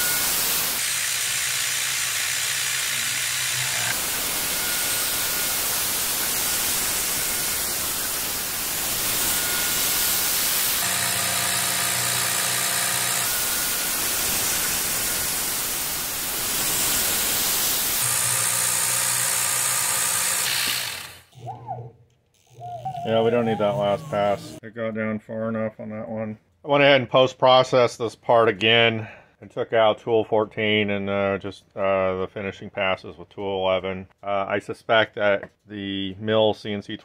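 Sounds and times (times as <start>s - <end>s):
coolant spray hissing: 0.0s - 1.4s, 3.9s - 10.8s, 13.3s - 18.0s
milling cutter cutting metal: 0.0s - 21.4s
motor hum: 0.0s - 24.6s.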